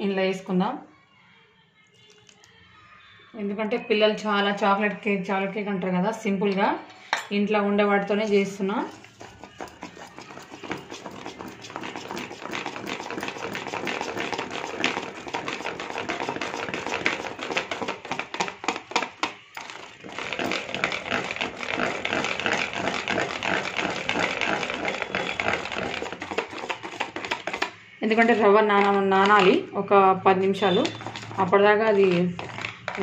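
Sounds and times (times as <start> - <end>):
whisk clicking and scraping bowl: 8.0 - 29.6, 30.4 - 33.0.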